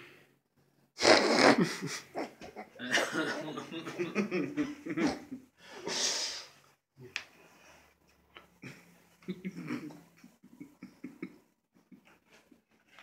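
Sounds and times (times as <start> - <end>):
man laughing: 1.5 - 5.4, 8.7 - 12.1.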